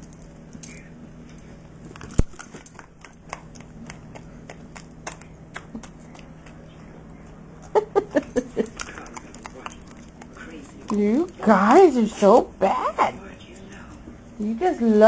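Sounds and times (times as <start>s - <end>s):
dog licking and lapping: 8.6s - 12.2s.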